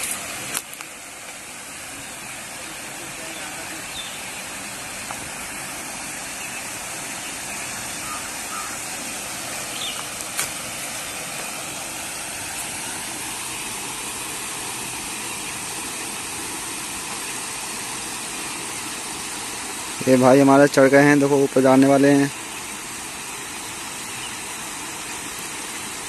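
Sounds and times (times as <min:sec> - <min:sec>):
water pouring over spillway: 0:00.0 - 0:26.0.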